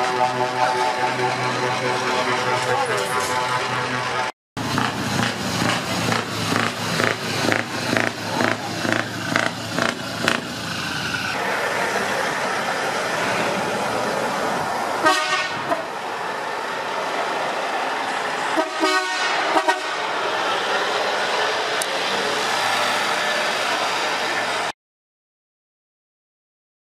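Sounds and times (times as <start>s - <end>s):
truck horn blasts: 0.0s - 2.7s, 15.0s - 15.9s, 18.5s - 20.1s
passing lorry running: 0.0s - 24.8s.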